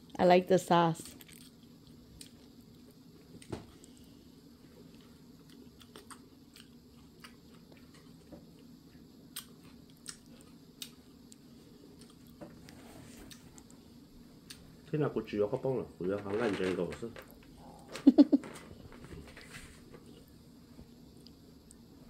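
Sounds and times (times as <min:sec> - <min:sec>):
chewing and crunching lettuce: 0:01.0 - 0:13.7.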